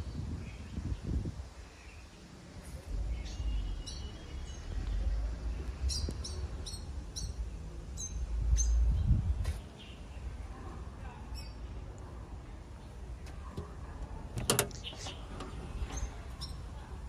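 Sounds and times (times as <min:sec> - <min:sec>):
bird chirping: 0:02.9 - 0:10.4, 0:14.4 - 0:17.0.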